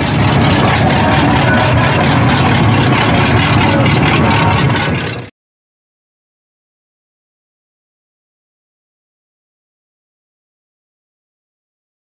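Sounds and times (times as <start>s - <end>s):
truck engine idling: 0.0s - 5.3s.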